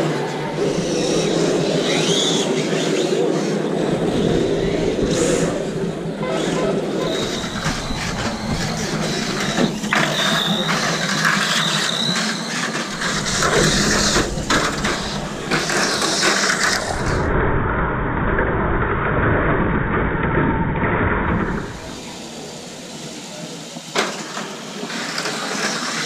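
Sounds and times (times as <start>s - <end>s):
high electric motor whine: 0.0s - 18.0s, 20.1s - 23.9s
clicking and rattling: 12.7s - 17.0s.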